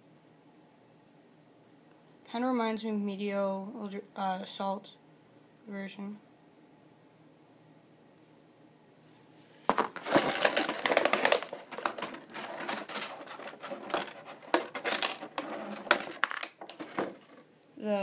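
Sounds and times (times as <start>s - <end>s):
plastic packaging crinkling: 9.7s - 17.4s.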